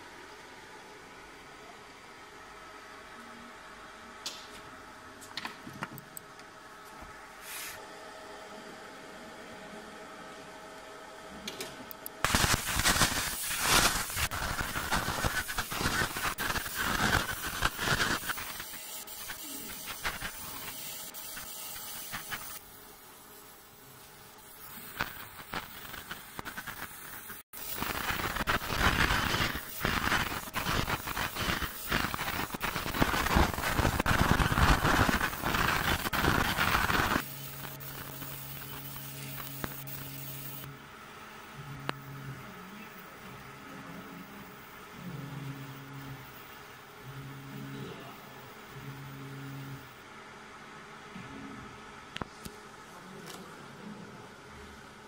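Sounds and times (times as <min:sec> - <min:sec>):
laser engraving crackling hiss: 0:12.2 - 0:40.8.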